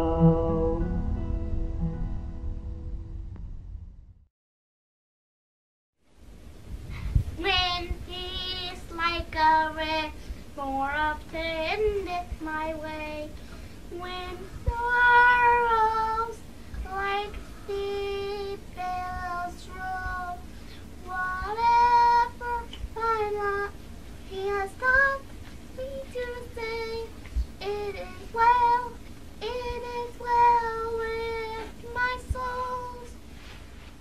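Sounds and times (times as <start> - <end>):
high solo singing voice: 0.0 - 1.0.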